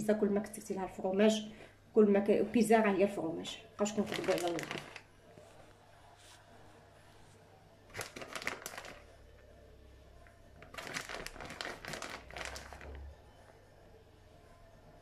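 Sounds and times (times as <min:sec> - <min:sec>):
plastic bag crinkling: 0:03.8 - 0:05.1, 0:07.9 - 0:09.2, 0:10.6 - 0:13.1.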